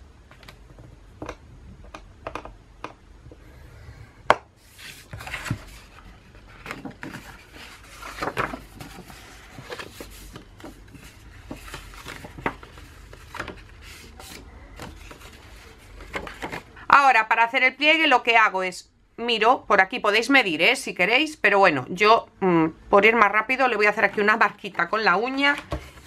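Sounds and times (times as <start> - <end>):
taps and clicks on plastic board: 1.2 - 3.4
paper rustling and sliding: 4.6 - 16.7, 25.5 - 26.0.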